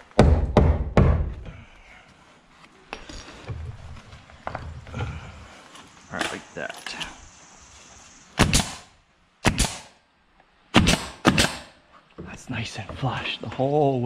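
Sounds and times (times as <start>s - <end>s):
pneumatic nail gun firing: 8.4s - 9.9s, 10.8s - 11.7s.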